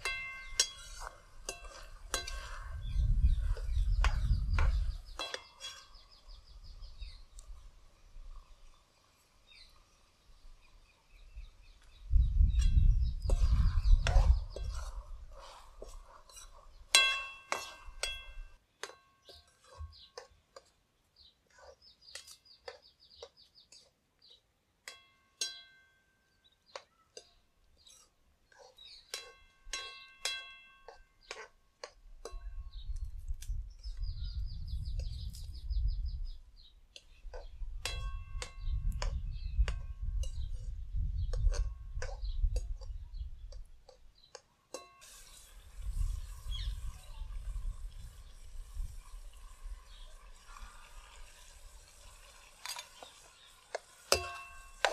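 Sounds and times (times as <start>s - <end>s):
ladle clinking and scraping in pan: 0.0s - 6.1s, 12.6s - 20.7s, 27.2s - 32.7s, 44.7s - 45.5s, 52.6s - 54.9s.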